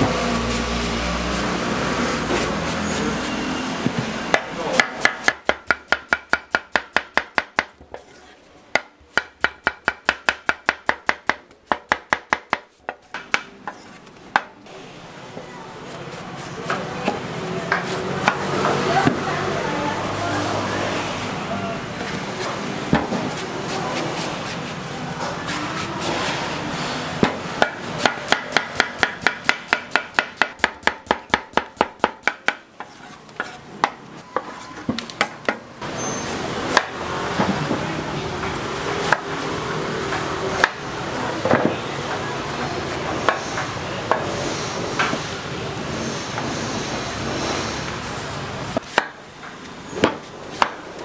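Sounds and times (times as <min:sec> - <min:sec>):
knife chopping on cutting board: 0:04.3 - 0:07.7, 0:27.6 - 0:32.6.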